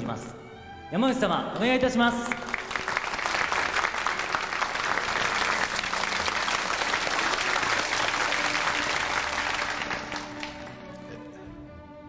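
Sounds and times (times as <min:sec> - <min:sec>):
crowd applauding: 0:01.6 - 0:11.5.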